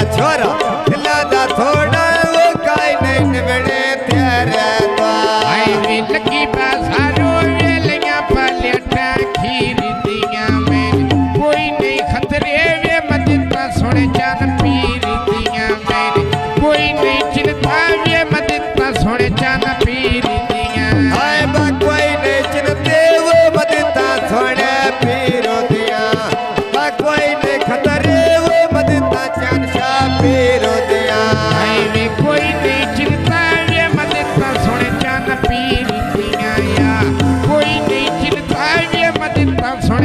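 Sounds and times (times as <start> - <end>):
hand drum beating: 0.0 - 40.0
wavering folk melody: 20.5 - 40.0.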